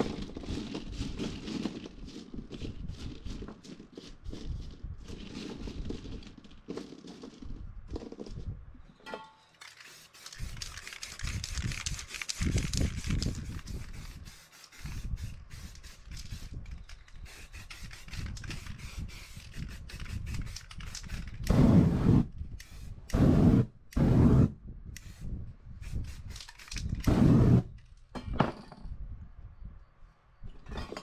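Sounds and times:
pebbles clicking: 0.0s - 8.5s, 9.5s - 14.1s
spray paint can hissing: 9.6s - 27.7s.

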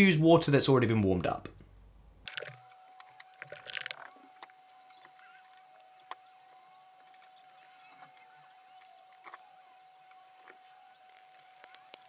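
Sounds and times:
faint steady high tone: 2.7s - 12.0s.

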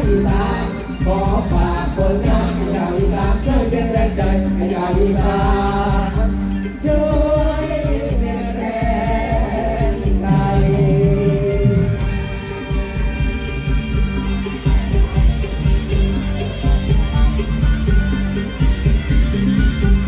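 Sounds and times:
person singing: 0.0s - 12.9s
band with heavy beat: 0.0s - 20.0s.

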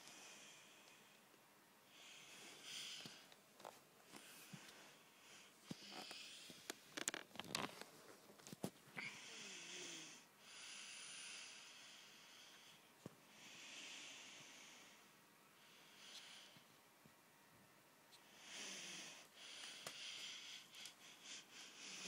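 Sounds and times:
breathy hiss: 0.0s - 1.2s, 1.8s - 3.4s, 4.1s - 6.8s, 9.0s - 16.7s, 18.2s - 22.0s.

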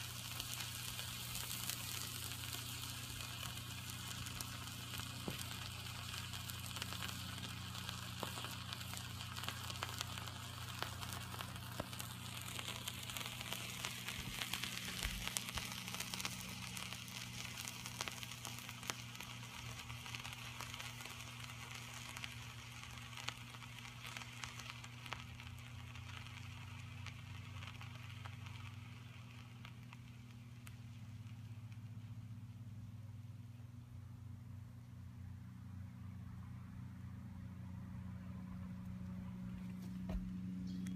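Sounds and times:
thermite sizzling hiss: 0.0s - 31.8s.

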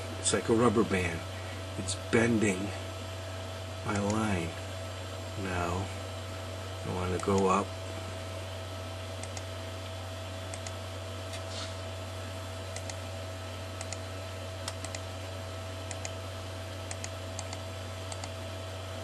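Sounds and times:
steady electrical hum: 0.0s - 19.0s
computer mouse clicking: 3.9s - 4.2s, 9.2s - 9.5s, 10.5s - 10.8s, 12.7s - 13.0s, 13.8s - 14.0s, 14.6s - 15.1s, 15.9s - 16.2s, 16.9s - 18.4s.

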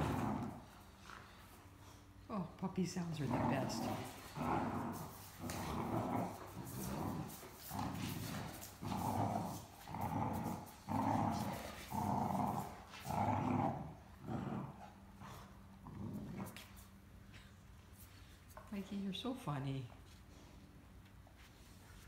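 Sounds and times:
puppy growling: 0.0s - 1.0s, 3.1s - 16.7s.

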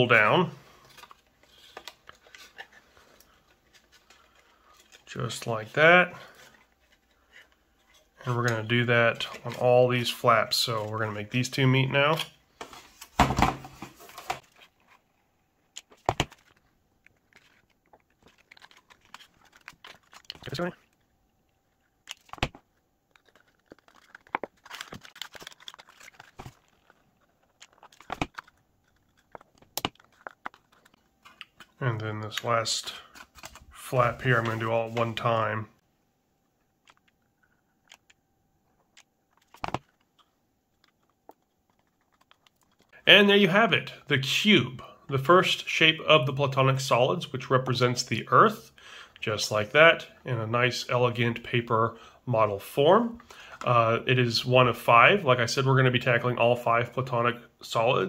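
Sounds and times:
stiff paper rustling: 15.8s - 21.1s, 22.0s - 35.4s.

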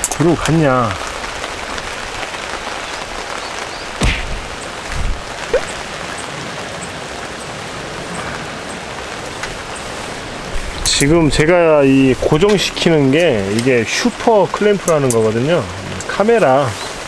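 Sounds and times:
steady rain falling: 0.0s - 17.0s
dull thump: 4.0s - 4.4s
sharp knock: 4.0s - 4.4s.

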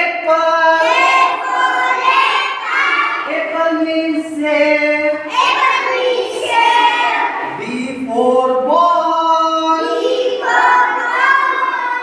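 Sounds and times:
children singing in chorus: 0.8s - 3.3s, 5.2s - 7.6s, 9.7s - 12.0s.

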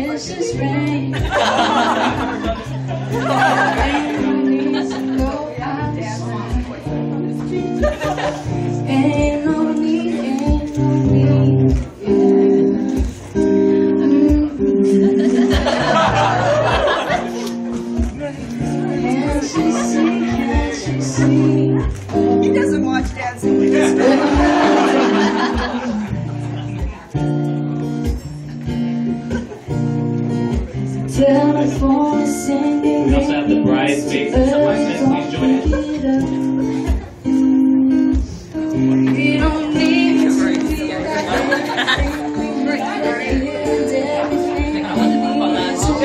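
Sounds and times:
acoustic guitar strumming chords: 0.0s - 46.0s
person singing: 8.8s - 13.1s, 18.4s - 22.1s, 30.8s - 37.2s, 38.8s - 46.0s.

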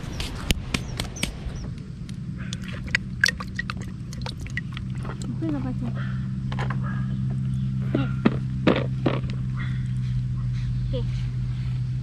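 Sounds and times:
low hum: 0.0s - 12.0s
water drips: 2.4s - 5.7s
hand splashing in bucket of water: 2.5s - 5.3s.

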